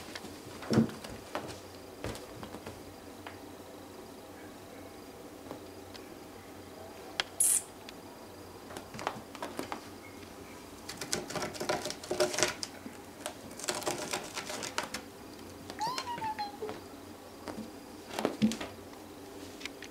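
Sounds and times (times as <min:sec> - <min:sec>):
loud hiss-like burst: 0:07.4 - 0:07.7
fingers scratching rope: 0:13.5 - 0:15.0
kitten mewing: 0:15.8 - 0:16.8.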